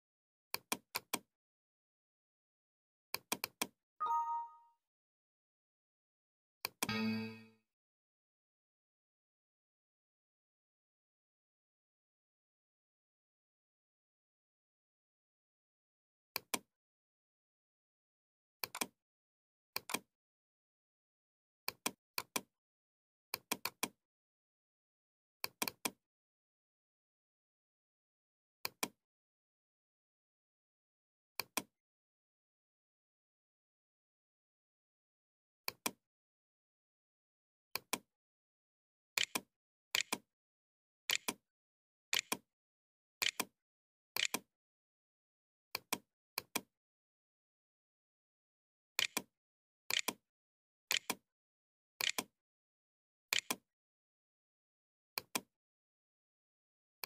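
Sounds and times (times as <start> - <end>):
computer mouse double-clicks: 0.5 - 1.3, 3.1 - 3.8, 18.6 - 19.0, 19.8 - 20.1, 23.4 - 24.0, 39.2 - 40.3, 41.1 - 41.4, 42.2 - 42.4, 43.2 - 43.5, 44.2 - 44.5, 49.0 - 49.3, 49.9 - 50.2, 50.9 - 51.2, 52.0 - 52.3, 53.3 - 53.6, 55.2 - 55.5.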